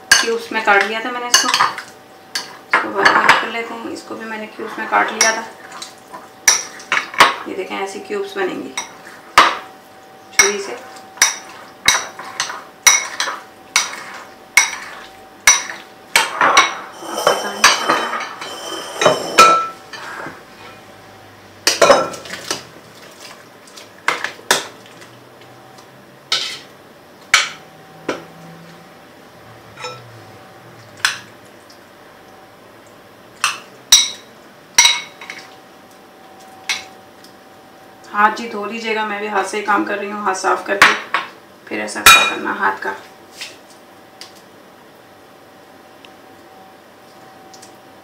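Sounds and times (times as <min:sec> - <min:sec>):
utensils clinking on bowls: 0:00.1 - 0:03.5, 0:10.3 - 0:20.9, 0:21.6 - 0:22.6, 0:29.7 - 0:30.2, 0:33.4 - 0:35.5, 0:36.4 - 0:37.0, 0:42.0 - 0:42.6
knife scraping: 0:16.9 - 0:20.8.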